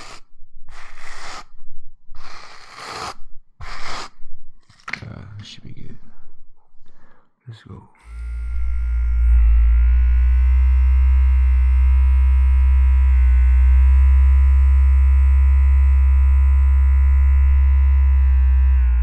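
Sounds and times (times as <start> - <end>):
electric appliance buzzing: 8.0 - 19.0.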